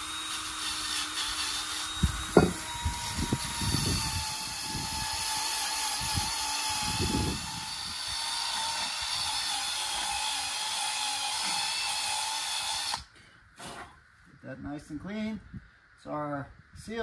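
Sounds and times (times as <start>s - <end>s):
cordless drill motor whine: 0.0s - 13.1s
sharp knocks on iron: 2.4s - 2.6s.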